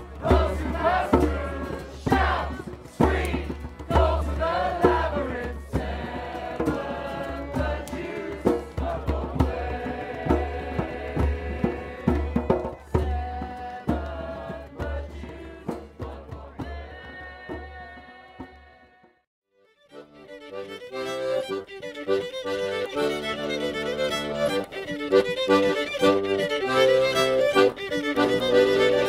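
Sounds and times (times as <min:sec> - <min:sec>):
group of voices chanting: 0:00.0 - 0:12.3
drum beats: 0:00.0 - 0:19.0.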